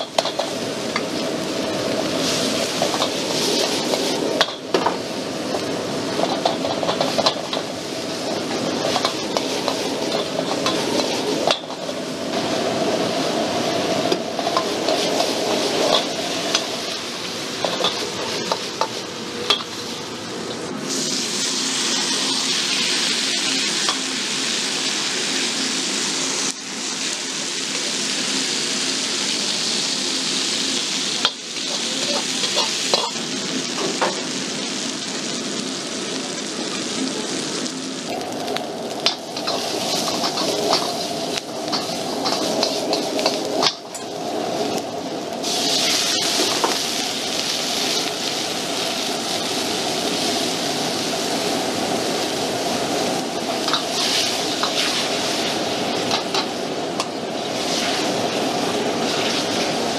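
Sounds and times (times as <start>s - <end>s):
food frying: 0.0s - 59.9s
food sizzling on hot plate: 0.0s - 59.9s
gas burner roaring: 0.0s - 59.9s
ladle scraping a wok: 6.1s - 12.1s, 31.2s - 33.2s, 39.0s - 44.1s.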